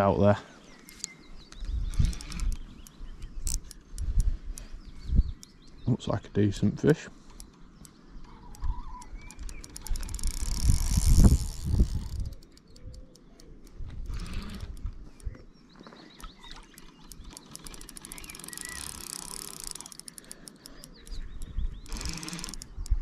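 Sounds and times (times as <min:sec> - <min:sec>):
fishing reel clicking: 0:01.8 - 0:04.7, 0:07.3 - 0:15.3, 0:16.2 - 0:23.0.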